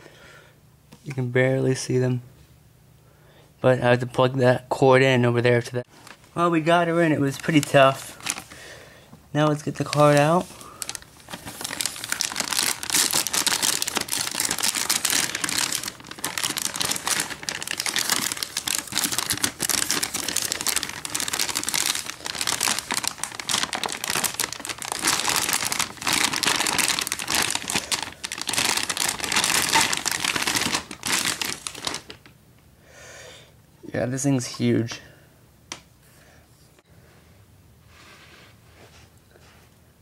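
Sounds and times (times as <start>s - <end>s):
plastic bag crinkling: 7.2s - 8.6s, 9.4s - 32.3s.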